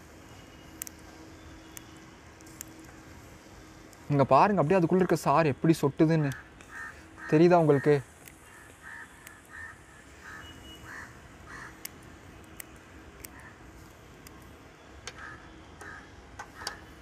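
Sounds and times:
crow cawing: 0:06.3 - 0:11.9, 0:13.3 - 0:13.6, 0:15.2 - 0:16.8.

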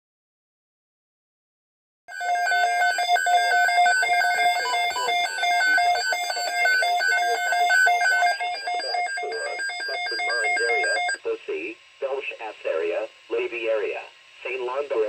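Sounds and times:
weather radio alarm beeps: 0:02.1 - 0:11.2.

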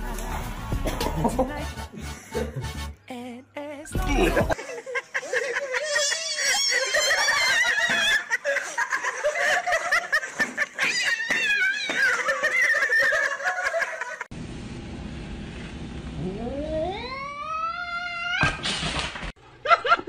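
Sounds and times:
people laughing hard: 0:04.0 - 0:14.3.

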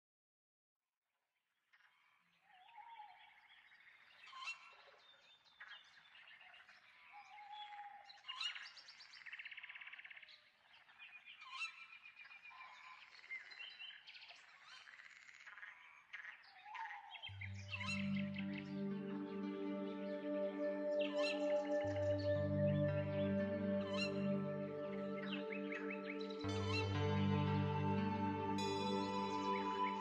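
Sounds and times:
bird trill: 0:16.6 - 0:30.0
birds chirping: 0:17.2 - 0:30.0.

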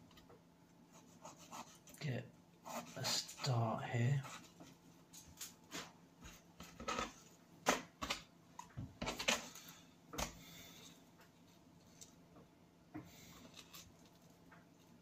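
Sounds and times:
knife tapping and scraping chopping board: 0:05.7 - 0:07.2.

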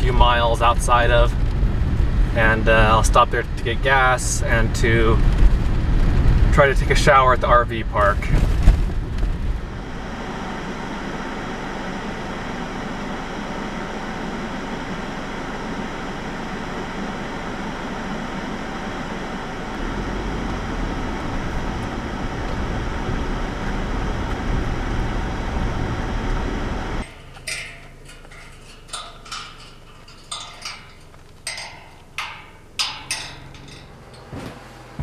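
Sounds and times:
car engine and tyre rumble: 0:00.0 - 0:35.0
sharp clicks and knocks: 0:27.0 - 0:34.6.

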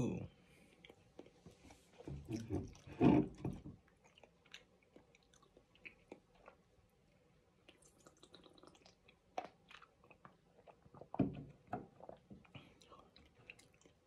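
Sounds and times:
person chewing: 0:03.8 - 0:14.0.

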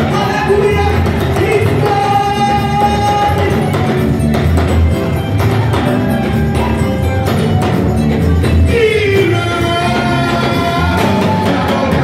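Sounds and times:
drum beat: 0:00.0 - 0:12.0
heavy bass: 0:00.0 - 0:12.0
live band playing praise music: 0:00.0 - 0:12.0
person singing: 0:08.4 - 0:12.0.

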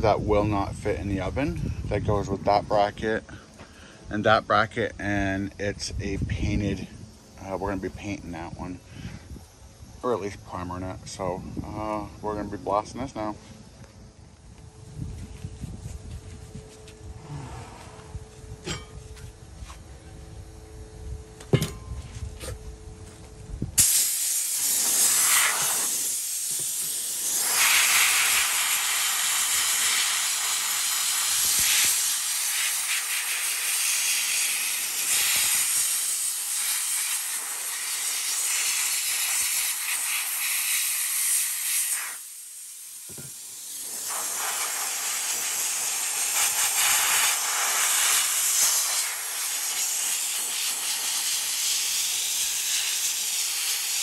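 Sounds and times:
sandblaster hissing: 0:23.6 - 0:54.0.

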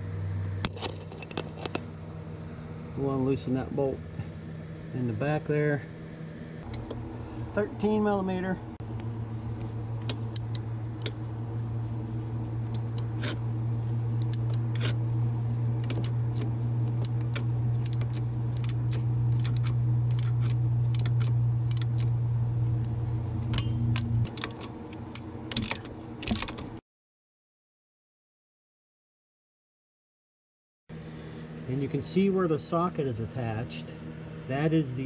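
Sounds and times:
steady low hum: 0:00.0 - 0:26.8, 0:30.9 - 0:35.0
socket wrench clicking: 0:15.8 - 0:22.1.

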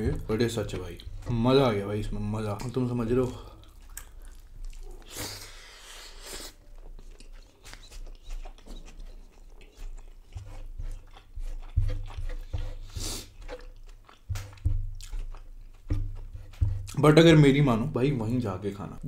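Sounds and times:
wet clicks of fingers mixing food: 0:00.0 - 0:05.1, 0:06.6 - 0:19.0
person chewing: 0:00.0 - 0:17.0
low thuds: 0:15.8 - 0:17.4.

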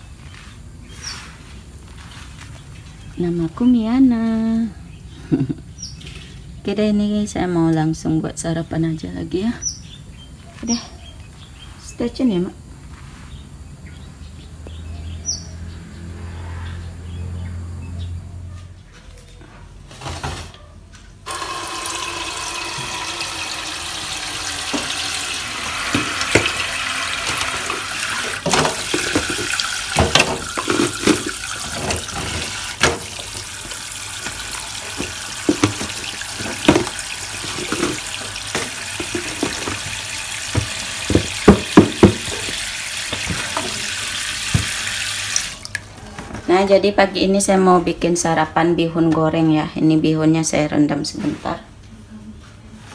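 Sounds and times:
tap running into plastic bowl: 0:24.2 - 0:45.0
plastic containers clattering: 0:25.6 - 0:44.8.

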